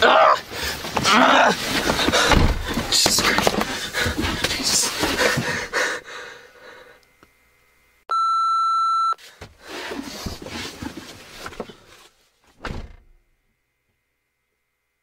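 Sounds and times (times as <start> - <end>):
censor bleep: 8.1 - 9.2.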